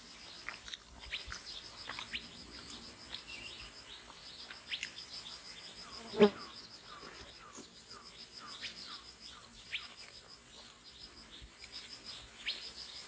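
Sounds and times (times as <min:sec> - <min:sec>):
bird chirps: 0:03.1 - 0:10.7.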